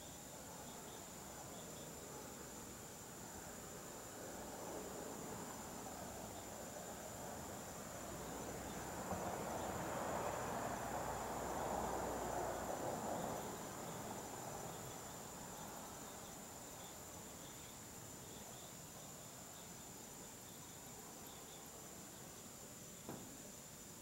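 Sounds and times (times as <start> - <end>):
night insects chorus: 0.0 - 24.0
broad swell of noise: 2.6 - 16.6.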